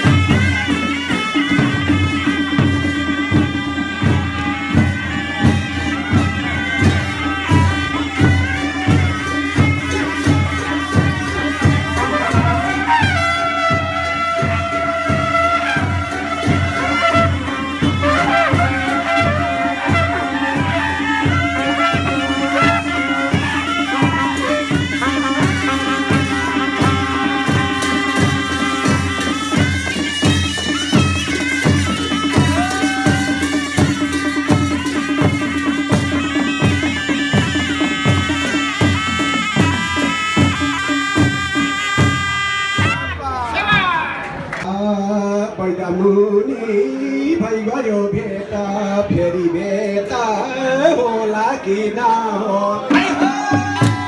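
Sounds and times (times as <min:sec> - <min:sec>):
reed pipes playing melody: 0:00.0 - 0:43.2
steady drum beat: 0:00.0 - 0:43.9, 0:52.8 - 0:54.0.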